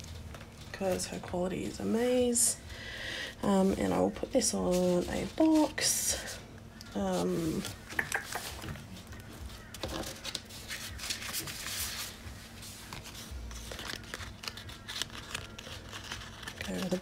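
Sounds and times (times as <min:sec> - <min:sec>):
plastic sleeves rustling and crinkling: 0:00.0 - 0:02.6, 0:03.4 - 0:17.0.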